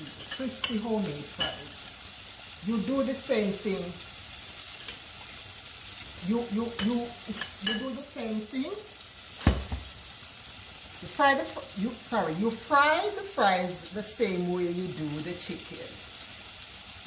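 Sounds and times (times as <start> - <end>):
hot oil sizzling: 0.0 - 17.0
sharp knock: 9.4 - 9.9.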